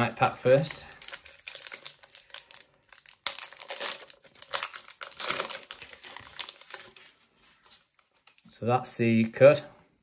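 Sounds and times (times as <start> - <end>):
foil wrapper crinkling: 0.0 - 7.2.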